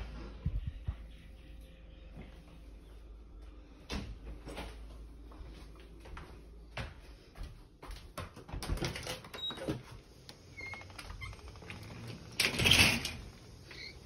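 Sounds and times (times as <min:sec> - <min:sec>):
footsteps: 0:02.1 - 0:08.8
metal screen door rattling open: 0:10.9 - 0:14.0.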